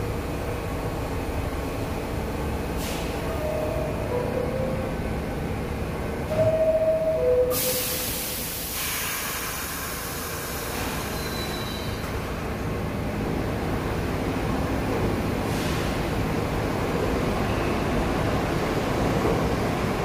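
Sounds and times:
train hum and rumble: 0.0s - 20.0s
air hiss of closing doors: 2.7s - 3.4s, 7.5s - 12.2s, 15.4s - 16.1s.

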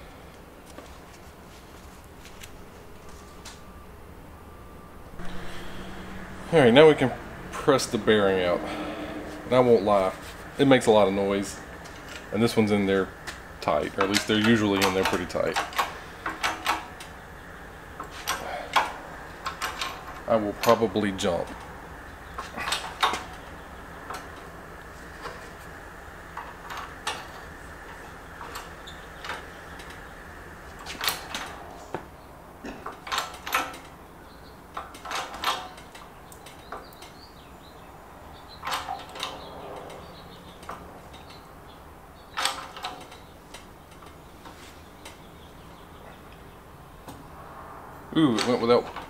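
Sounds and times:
metallic clicks and clanks: 13.2s - 17.2s, 18.0s - 24.5s, 26.3s - 30.1s, 30.7s - 31.7s, 32.7s - 34.0s, 34.7s - 37.2s, 38.5s - 41.5s, 42.2s - 45.3s.

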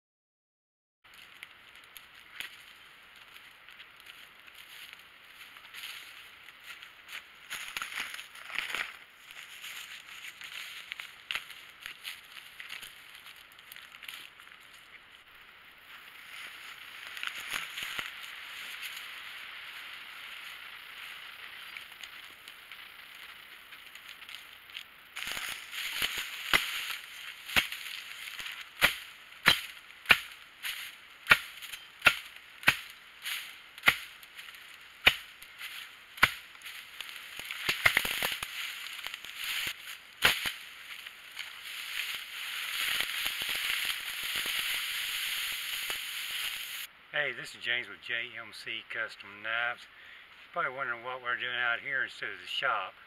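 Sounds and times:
footsteps through dry grass: 1.1s - 46.9s
machete chopping sapling: 25.2s - 44.8s.

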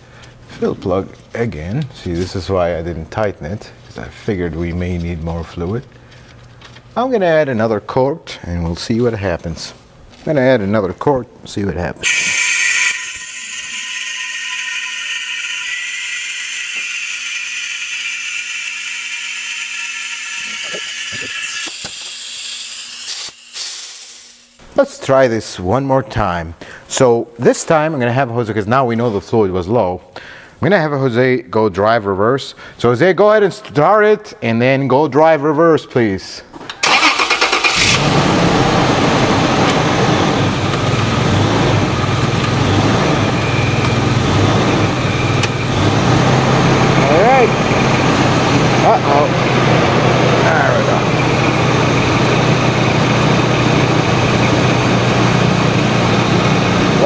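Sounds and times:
fluid pump whirring: 12.0s - 23.0s, 36.8s - 57.0s
car engine idling: 37.8s - 57.0s.

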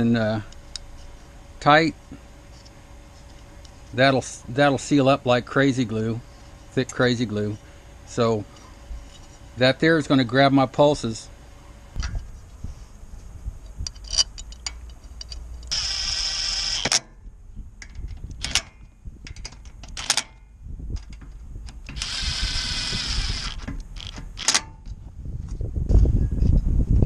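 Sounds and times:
metallic clicks of socket and bolts: 13.8s - 15.8s, 17.8s - 20.4s
cordless drill running: 15.7s - 17.0s, 22.0s - 24.1s.

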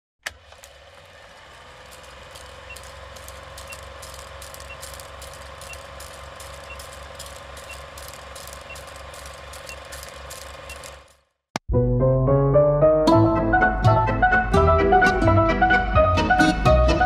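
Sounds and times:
film projector whirring: 0.2s - 11.4s
film crackle and pops: 1.8s - 11.2s.

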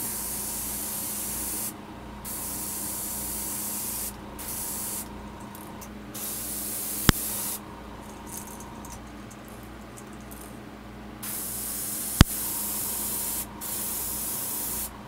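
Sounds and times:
airbrush spraying hiss: 0.0s - 5.1s, 6.2s - 7.6s, 11.2s - 15.0s.

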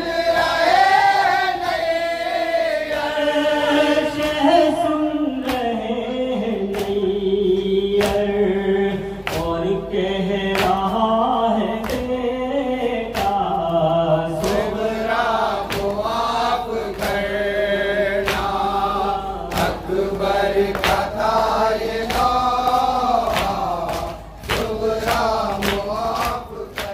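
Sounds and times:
men chanting in unison: 0.0s - 26.9s
person singing into microphone: 2.8s - 17.1s
chest-beating slaps: 21.9s - 26.9s.

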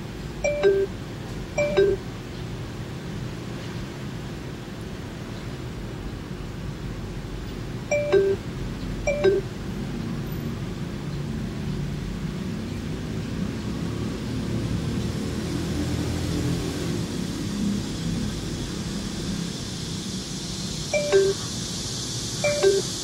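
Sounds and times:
low car cabin noise: 0.2s - 2.4s, 7.7s - 9.6s, 20.9s - 21.4s, 22.4s - 23.0s
two-note falling chime: 0.5s - 0.9s, 1.6s - 2.0s, 21.0s - 21.4s.

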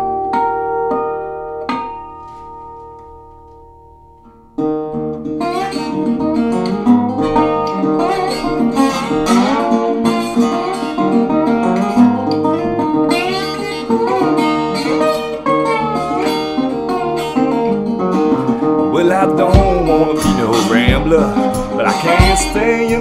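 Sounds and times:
resonator guitar blues line: 0.0s - 23.0s
ringing guitar chord: 5.1s - 23.0s.

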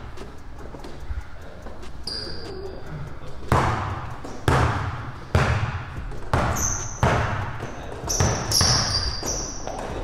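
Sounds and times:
sneakers squeaking on court floor: 1.7s - 2.6s, 3.4s - 10.0s
basketball bouncing indoors: 3.4s - 10.0s.

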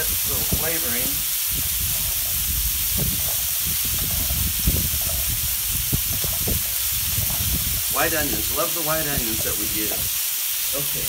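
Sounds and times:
chicken and onions sizzling: 0.0s - 11.0s
onion pieces tapping on griddle: 1.5s - 7.6s.

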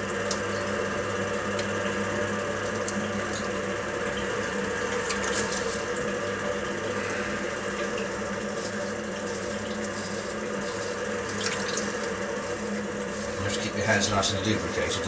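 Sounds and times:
potter's wheel humming: 0.0s - 15.0s
wet clay swishing: 8.5s - 13.4s.

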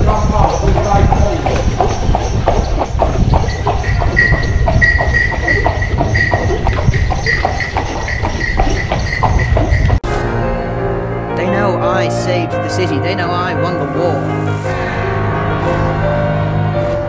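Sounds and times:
horse hooves clip-clopping on stone: 0.0s - 10.0s
high ringing tone: 3.5s - 10.0s.

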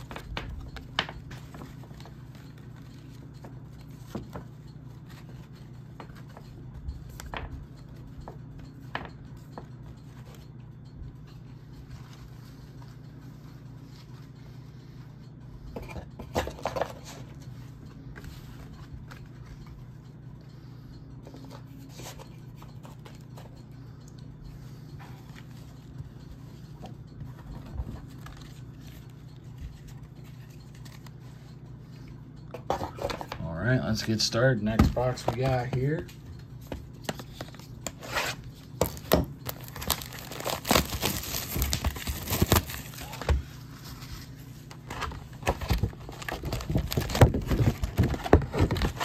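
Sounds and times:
steady low hum: 0.0s - 49.0s
packaging rustling: 37.2s - 49.0s.

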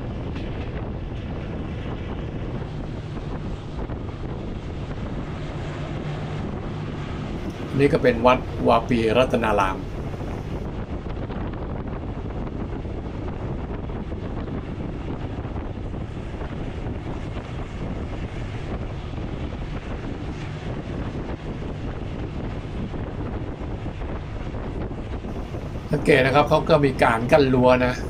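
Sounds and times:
vehicle rumble: 0.0s - 10.8s
wind buffeting microphone: 0.0s - 28.0s.

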